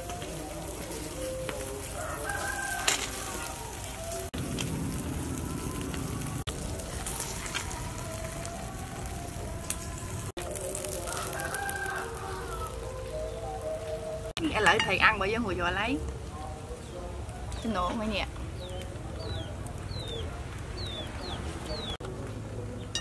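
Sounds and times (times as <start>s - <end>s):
rooster crowing: 1.8s - 4.3s, 10.7s - 14.0s.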